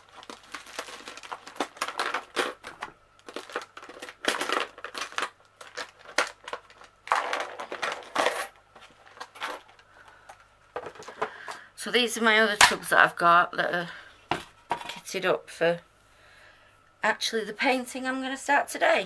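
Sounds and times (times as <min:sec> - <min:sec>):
plastic crinkling and clicking: 0:00.0 - 0:11.6
plastic box set down: 0:06.1 - 0:09.8, 0:10.7 - 0:11.6.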